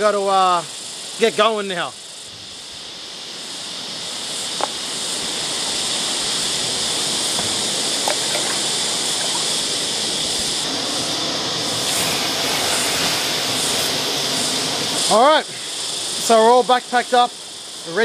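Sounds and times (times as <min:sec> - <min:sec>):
creek water over rocks: 0:07.4 - 0:10.0.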